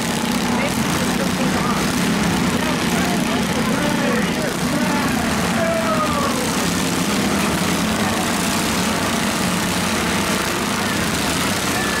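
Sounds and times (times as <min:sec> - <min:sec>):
riding lawn mower engines droning: 0:00.0 - 0:12.0.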